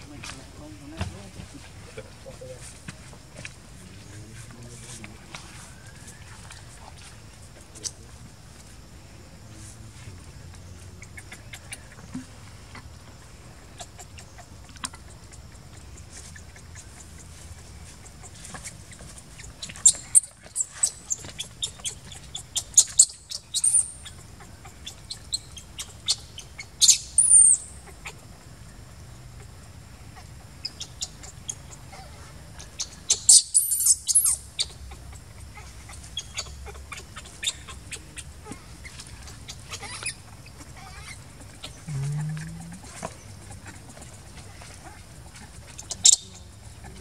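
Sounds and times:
baby monkey squeaking cries: 0:19.6 - 0:28.0, 0:32.8 - 0:43.8, 0:45.7 - 0:46.4.

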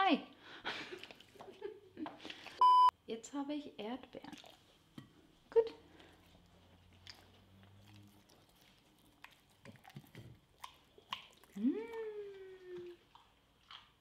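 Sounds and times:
dog licking and chewing: 0:00.8 - 0:02.6, 0:04.0 - 0:05.3, 0:05.9 - 0:14.0.

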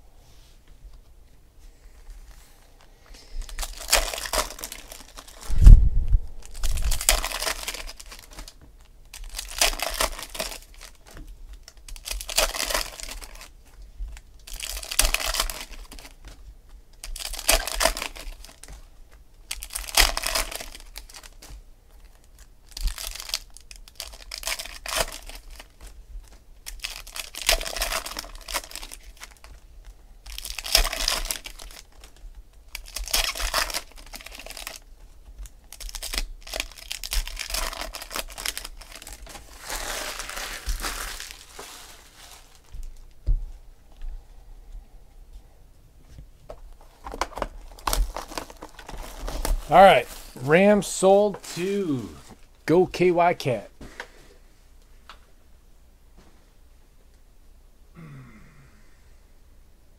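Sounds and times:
foil wrappers tearing and crinkling: 0:03.2 - 0:05.5, 0:06.4 - 0:13.5, 0:14.1 - 0:16.3, 0:17.0 - 0:18.8, 0:19.4 - 0:29.6, 0:30.2 - 0:43.0, 0:46.9 - 0:51.8.

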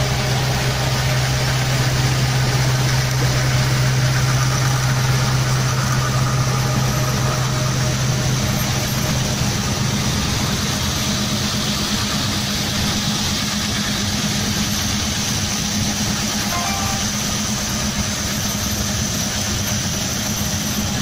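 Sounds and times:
tractor engine drone: 0:00.0 - 0:21.0.

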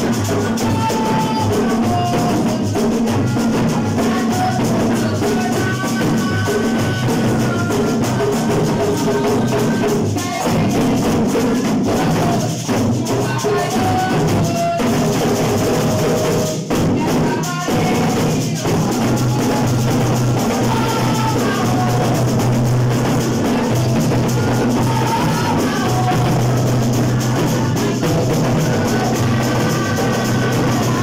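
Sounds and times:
boy singing into a microphone: 0:00.0 - 0:31.0
hand and stick drums playing: 0:00.0 - 0:31.0.

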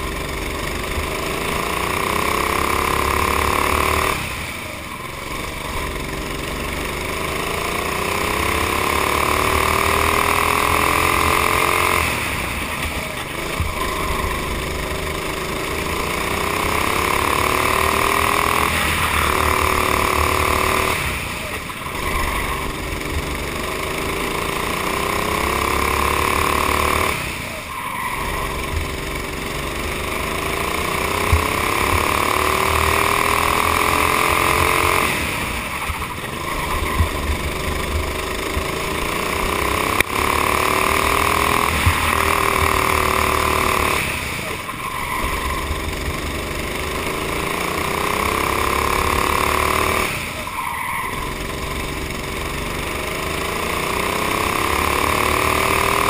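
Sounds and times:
kart engine at full throttle: 0:00.0 - 0:56.0.

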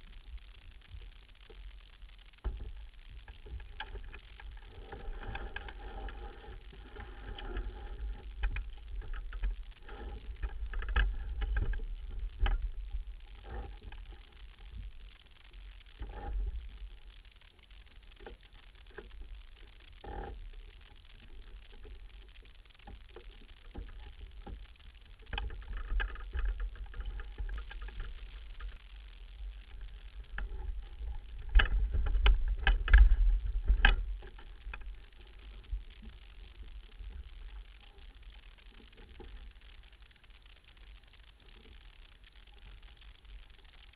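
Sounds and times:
wind rumble on microphone: 0:02.4 - 0:15.0, 0:24.0 - 0:37.8.

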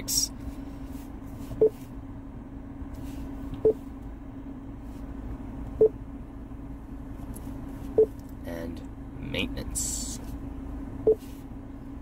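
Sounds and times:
steady low hum: 0:00.0 - 0:12.0
car warning chime beeps: 0:01.6 - 0:01.8, 0:03.6 - 0:03.9, 0:08.0 - 0:08.2, 0:11.0 - 0:11.2.

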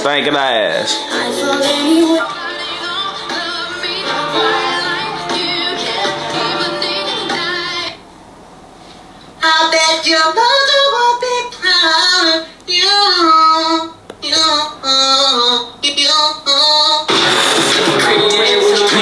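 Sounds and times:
high-pitched singing: 0:00.9 - 0:08.0.

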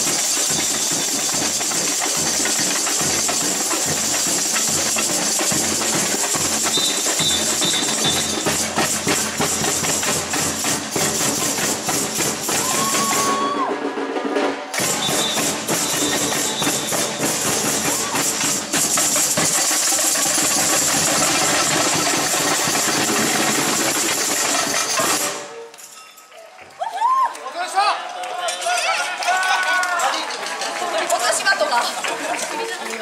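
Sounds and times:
high rattling shakers: 0:00.0 - 0:13.5, 0:14.8 - 0:26.4
samba drums playing: 0:00.0 - 0:25.5.

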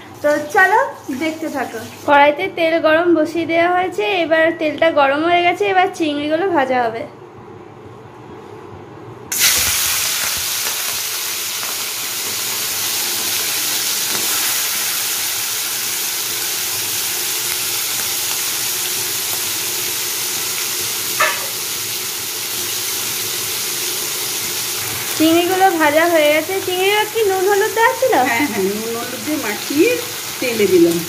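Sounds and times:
prawns sizzling in hot oil: 0:00.1 - 0:02.2, 0:09.3 - 0:31.0.

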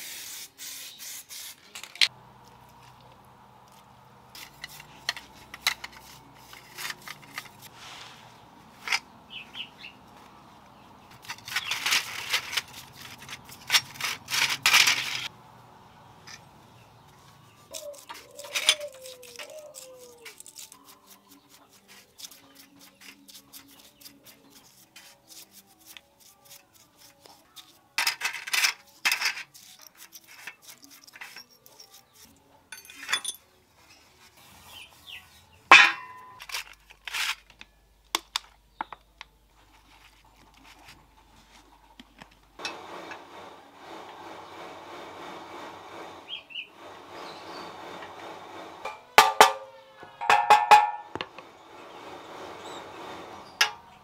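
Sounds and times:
brush scrubbing metal: 0:03.7 - 0:09.0, 0:17.4 - 0:32.9
metal parts clinking: 0:04.3 - 0:07.7, 0:11.1 - 0:15.3, 0:28.0 - 0:32.0, 0:32.7 - 0:33.4
steel plate clank: 0:35.7 - 0:36.4.

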